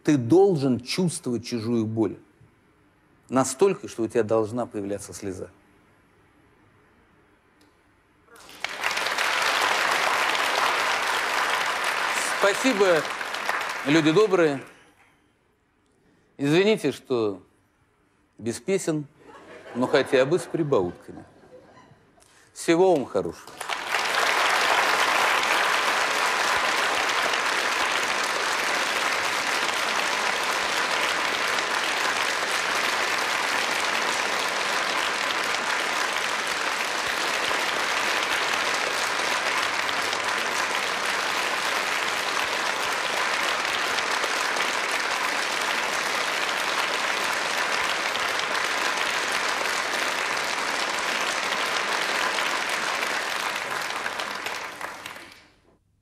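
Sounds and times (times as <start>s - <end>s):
audience applauding: 8.3s - 14.7s, 23.5s - 55.6s.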